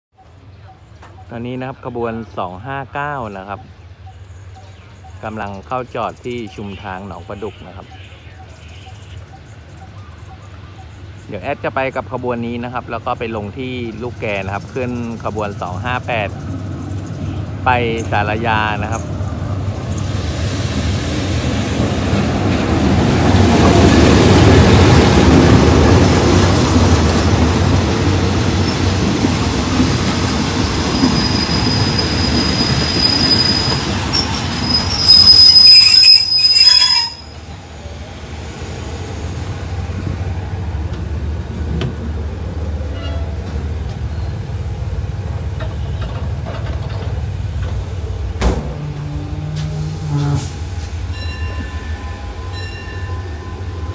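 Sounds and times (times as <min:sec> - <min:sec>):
train cars rumbling past: 0:00.2 - 0:53.9
high thin brake squeal: 0:31.0 - 0:37.4
diesel locomotive engine running: 0:37.4 - 0:53.9.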